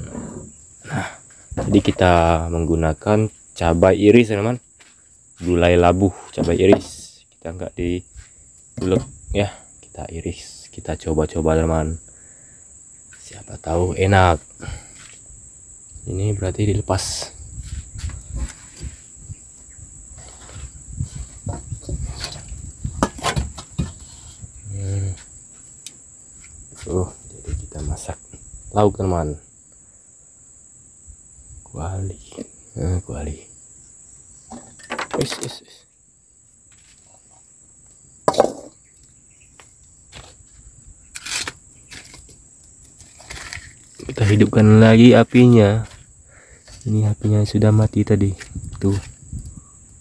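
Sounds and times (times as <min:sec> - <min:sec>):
crickets chirring: 0:00.0 - 0:50.0
high-pitched insect drone: 0:00.0 - 0:50.0
clicks and knocks of kitchen things: 0:34.5 - 0:35.5.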